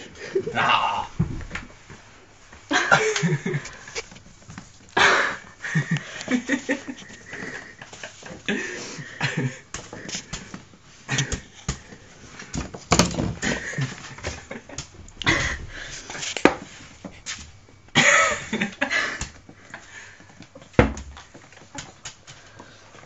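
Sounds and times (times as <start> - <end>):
broom sweeping hard floor: 5.6 - 19.4.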